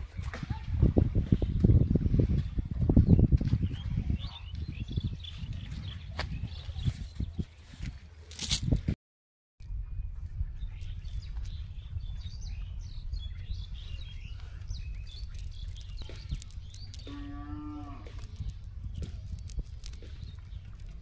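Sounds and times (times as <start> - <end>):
birds chirping: 0.0 - 8.0, 9.6 - 21.0
low rumble: 9.6 - 21.0
cow mooing: 17.1 - 18.1.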